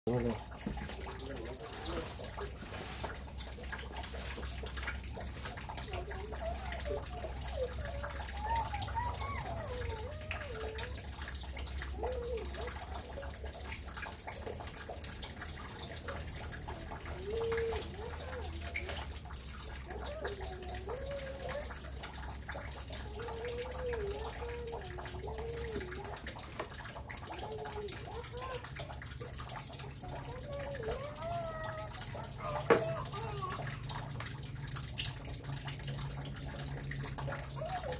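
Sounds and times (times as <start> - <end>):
faint wavering human voice: 0.1 - 2.9, 5.8 - 11.2, 11.9 - 13.7, 16.1 - 19.1, 19.8 - 26.4.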